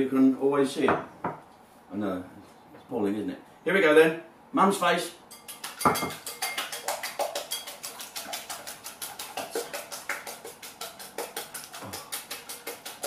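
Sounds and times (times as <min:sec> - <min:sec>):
whisk clicking against glass bowl: 0:05.3 - 0:13.0.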